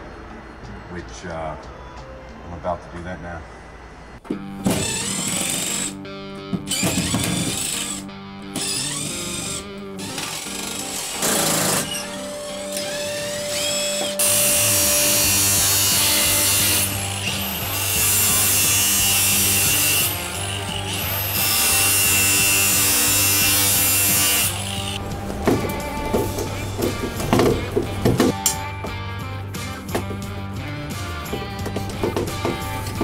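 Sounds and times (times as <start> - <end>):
angle grinder cutting metal: 4.6 - 6.0, 6.7 - 28.6
cordless impact driver: 4.6 - 6.0, 6.7 - 8.0, 8.6 - 25.0.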